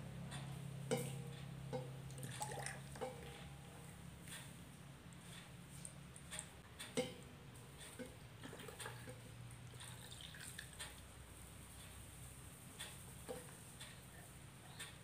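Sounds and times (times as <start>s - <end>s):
water trickling through funnel: 2.1s - 3.3s, 8.0s - 11.0s.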